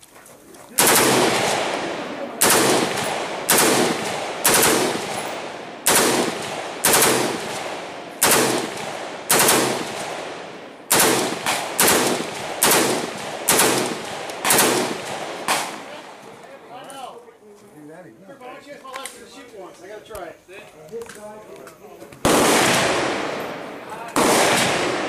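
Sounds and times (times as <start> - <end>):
rifle gunshots echoing: 0.8 - 16.3, 22.2 - 25.0.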